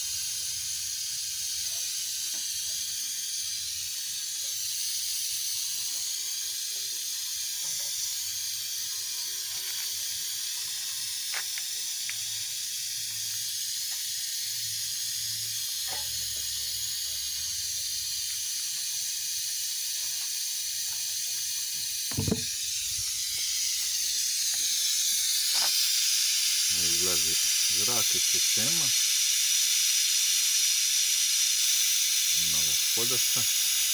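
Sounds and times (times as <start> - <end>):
compressed air hissing: 0.0 - 33.9
single knock: 22.1 - 22.5.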